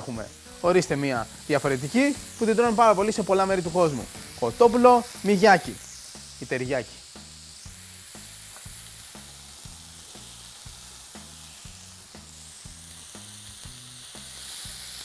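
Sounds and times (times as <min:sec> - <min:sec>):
background music with beat: 0:00.0 - 0:15.0
chicken sizzling in grill pan: 0:00.0 - 0:15.0
sauce bubbling: 0:07.0 - 0:15.0.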